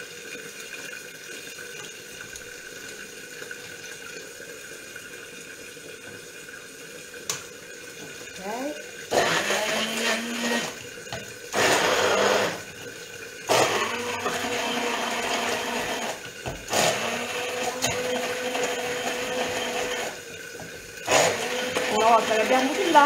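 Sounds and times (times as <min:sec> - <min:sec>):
electric blender running: 0:08.6 - 0:12.8, 0:13.5 - 0:20.4, 0:21.0 - 0:23.0.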